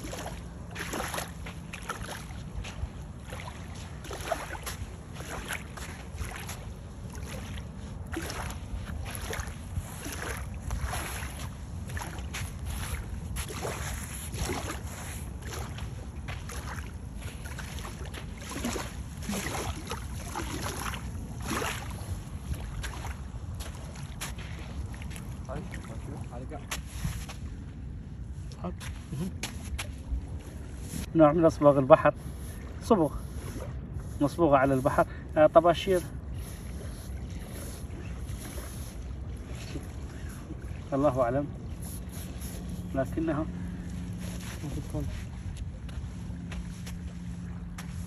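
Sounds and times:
wind and sea rumble: 0:00.0 - 0:48.0
soft crunching swishes: 0:36.4 - 0:48.0.

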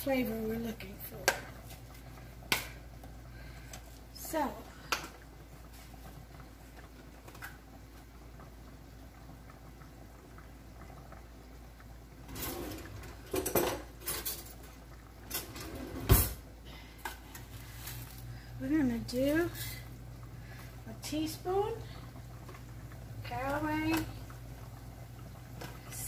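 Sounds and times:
kitchen utensils clinking and knocking: 0:12.3 - 0:16.4.

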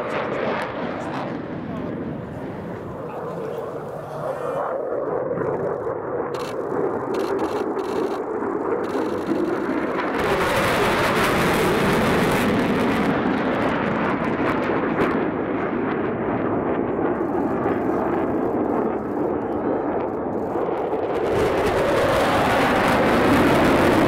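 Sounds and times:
fighter jets roaring past: 0:00.0 - 0:24.0.

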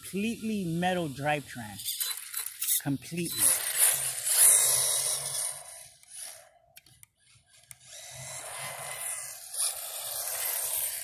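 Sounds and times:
electric motor whining: 0:01.8 - 0:06.5, 0:07.5 - 0:11.0.

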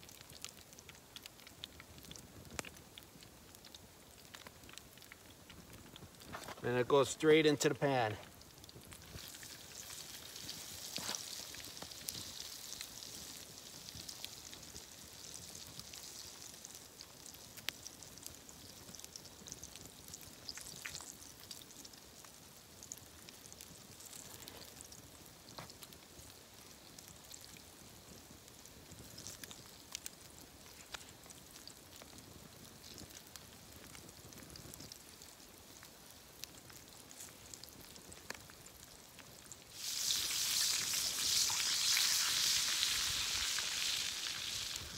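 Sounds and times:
fish deep-frying sizzle: 0:00.0 - 0:06.8, 0:07.9 - 0:44.9
oil popping: 0:39.7 - 0:44.9.

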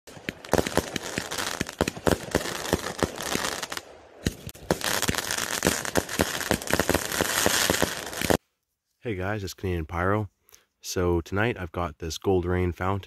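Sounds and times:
fireworks crackling and popping: 0:00.1 - 0:08.4.

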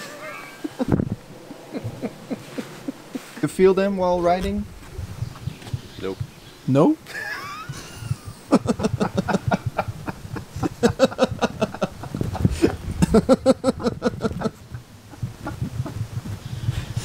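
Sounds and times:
person laughing: 0:00.6 - 0:03.4, 0:07.1 - 0:16.0.

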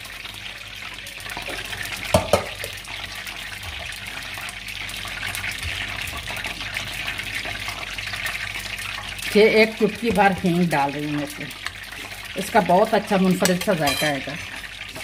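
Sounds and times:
spoon knocking on dish: 0:02.1 - 0:02.6, 0:13.4 - 0:14.2.

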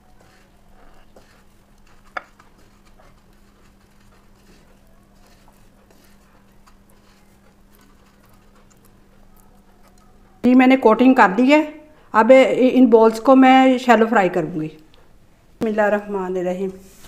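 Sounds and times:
breadcrumbs crackling: 0:00.2 - 0:10.1.

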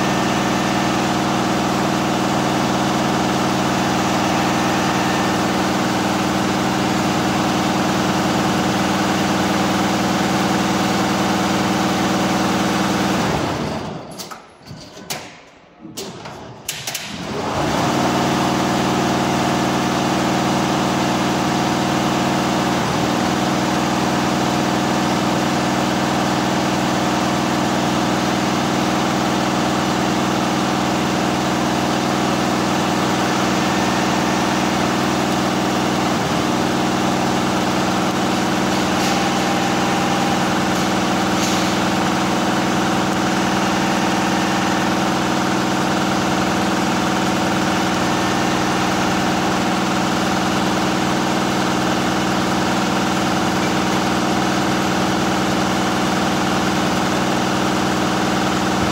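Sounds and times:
constant machine hum: 0:31.6 - 0:57.2.

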